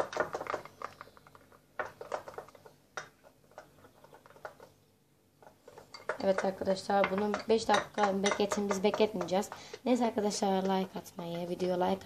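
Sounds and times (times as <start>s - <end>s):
spatula tapping glass bowl: 6.0s - 9.7s.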